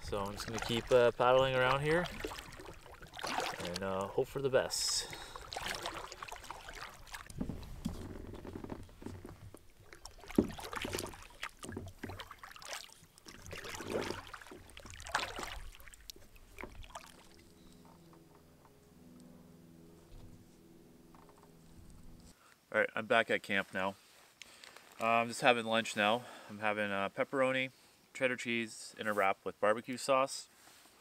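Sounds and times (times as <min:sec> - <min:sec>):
paddle swishing and splashing: 0:00.0 - 0:18.3.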